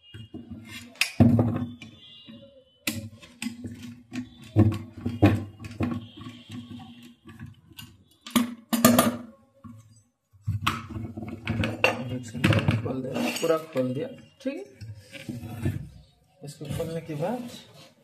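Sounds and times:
knocks and clinks of metal parts: 10.7s - 13.9s.

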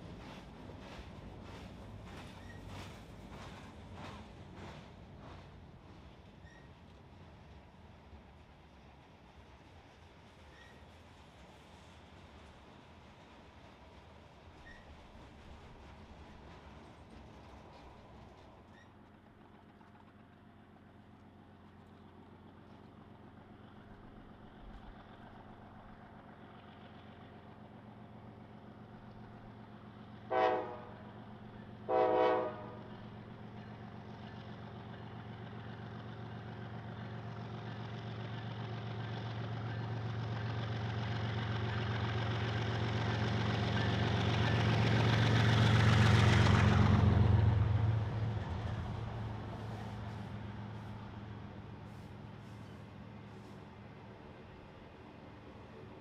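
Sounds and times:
train cars rolling by: 0.0s - 56.0s
diesel engine drone: 21.0s - 56.0s
locomotive air horn blasts: 30.3s - 31.0s, 31.9s - 32.8s.

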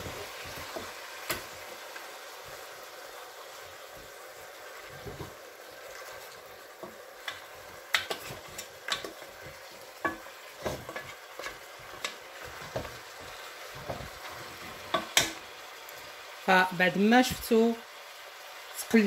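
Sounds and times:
meat sizzling in oil: 0.0s - 19.0s
wooden spoon scraping pot: 6.8s - 15.2s.

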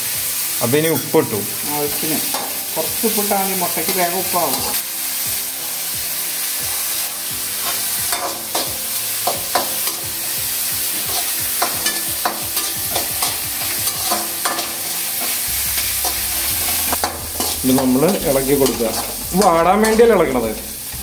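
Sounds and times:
onions sizzling in hot oil: 0.0s - 21.0s
utensil scraping against metal: 11.0s - 20.1s.

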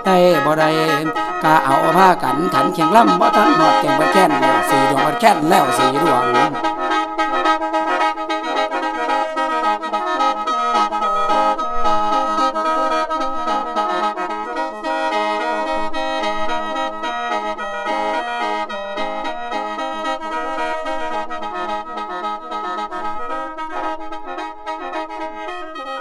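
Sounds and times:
bamboo mouth organ playing: 0.0s - 9.2s.

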